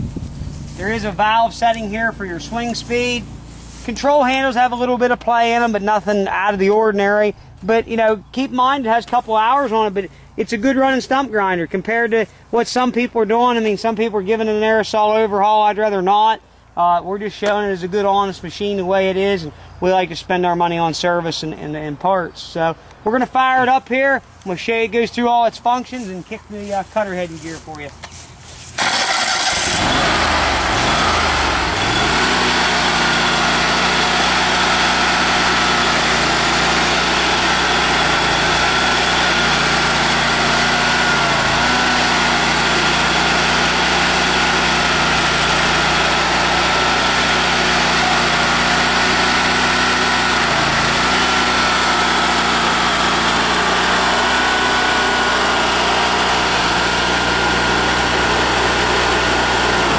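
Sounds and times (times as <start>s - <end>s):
gas engine running: 0.0s - 4.5s, 28.8s - 59.9s.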